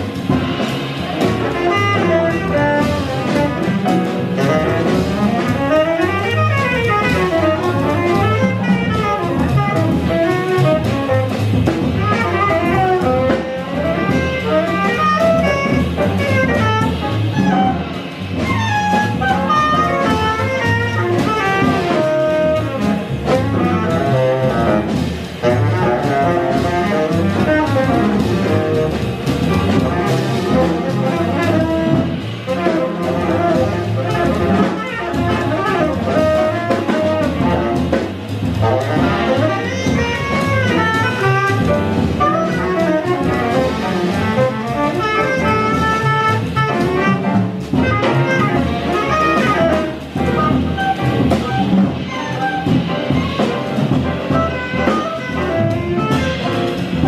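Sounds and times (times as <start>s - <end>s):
cymbals played with sticks: 0.0s - 57.0s
plucked upright bass: 0.0s - 57.0s
fast melodic solo line: 39.0s - 57.0s.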